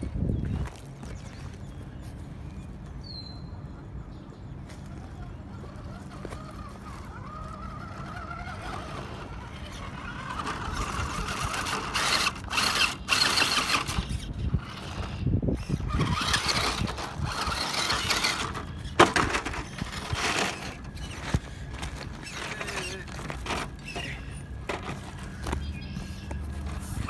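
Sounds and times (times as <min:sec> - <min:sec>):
tyres crunching on gravel: 0:04.6 - 0:27.0
electric motor and gears whining: 0:04.9 - 0:27.0.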